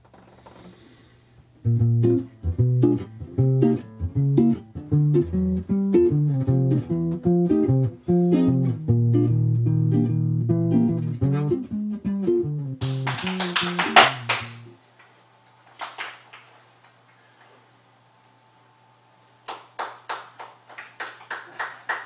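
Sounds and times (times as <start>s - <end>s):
guitar plucking bass notes and chords: 1.6s - 14.7s.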